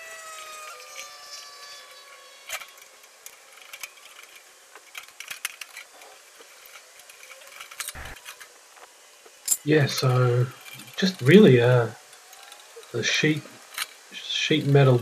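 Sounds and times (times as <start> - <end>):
hand tools clicking on metal: 2.5 - 8.4.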